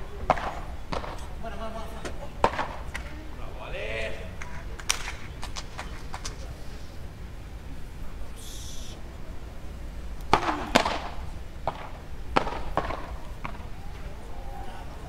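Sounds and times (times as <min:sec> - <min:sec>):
paddles hitting ball: 0:00.3 - 0:01.4, 0:02.0 - 0:03.1, 0:10.2 - 0:14.1.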